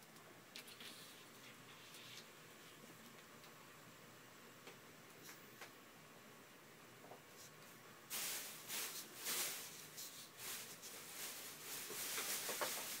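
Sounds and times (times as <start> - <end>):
plastic bag crinkling: 8.1 - 13.0.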